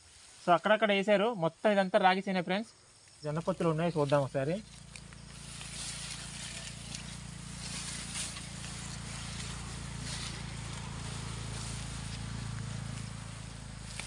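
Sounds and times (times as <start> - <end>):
faint footsteps: 3.0 - 14.0
stalks brushing against clothing: 3.1 - 14.0
steady low hum: 3.4 - 14.0.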